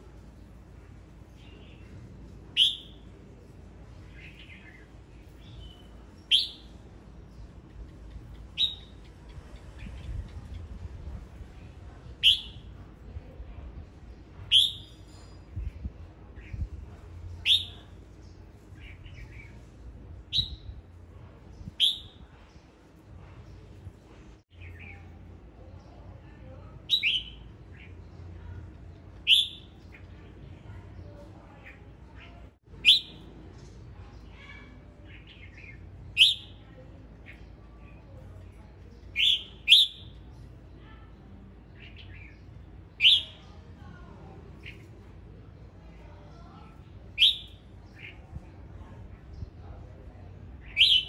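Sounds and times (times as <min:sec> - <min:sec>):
soft bird chirps: 0:01.3 - 0:10.9, 0:14.5 - 0:51.0
bird sharp calling notes: 0:02.6 - 0:03.0, 0:05.5 - 0:06.8, 0:08.3 - 0:09.2, 0:12.2 - 0:12.6, 0:14.5 - 0:15.0, 0:29.3 - 0:29.8, 0:32.8 - 0:33.2, 0:39.2 - 0:40.2, 0:43.0 - 0:43.5, 0:47.2 - 0:48.2, 0:50.6 - 0:51.0
bird singing sharp high notes: 0:02.6 - 0:03.0, 0:14.5 - 0:15.2, 0:29.3 - 0:29.8, 0:39.2 - 0:40.2, 0:47.2 - 0:48.1.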